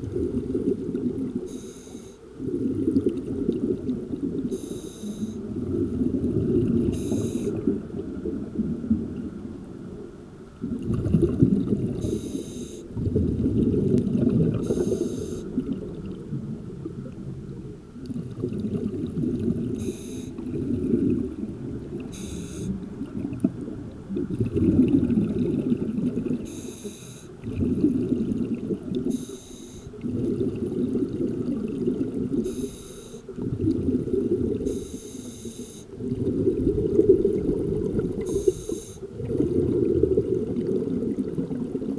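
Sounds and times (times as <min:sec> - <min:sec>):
hissing regulator inhalations: 0:01.5 - 0:02.2, 0:04.5 - 0:05.4, 0:06.9 - 0:07.6, 0:12.0 - 0:12.9, 0:14.6 - 0:15.5, 0:19.8 - 0:20.4, 0:22.1 - 0:22.8, 0:26.4 - 0:27.4, 0:29.1 - 0:30.0, 0:32.4 - 0:33.3, 0:34.7 - 0:35.9, 0:38.3 - 0:39.1
bubbling exhalations: 0:35.9 - 0:41.9.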